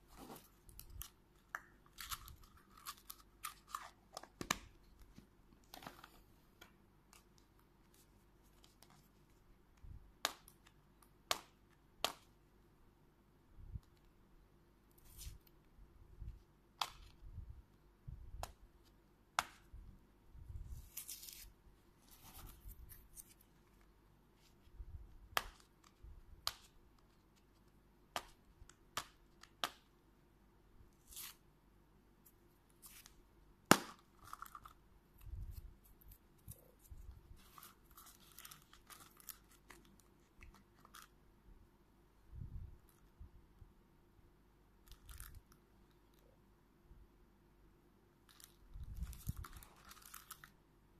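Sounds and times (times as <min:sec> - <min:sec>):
plastic wrapping tearing and crinkling: 0:37.4 - 0:41.1, 0:48.3 - 0:50.5.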